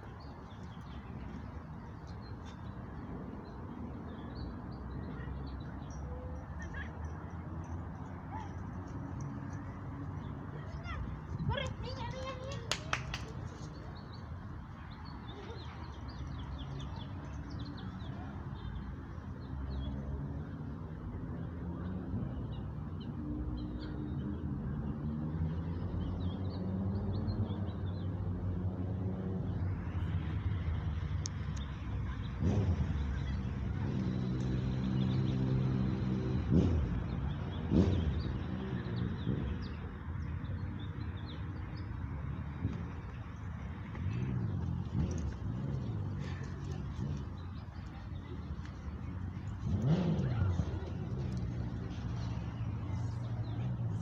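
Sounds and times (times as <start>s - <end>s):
low traffic rumble: 0.0s - 54.0s.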